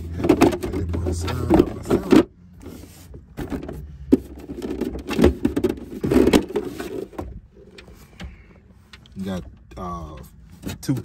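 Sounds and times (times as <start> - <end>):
plastic rattling and scraping: 0.0 - 8.5.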